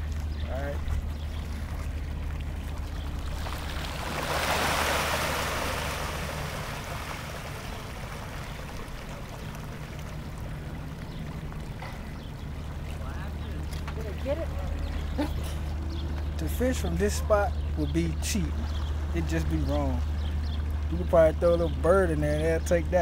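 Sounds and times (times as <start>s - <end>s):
steady low hum: 0.0s - 23.0s
fish splashing at water surface: 1.3s - 13.1s.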